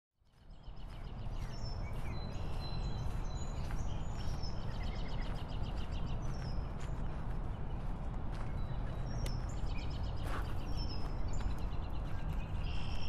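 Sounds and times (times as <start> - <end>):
birds chirping and singing: 0.3 - 13.0.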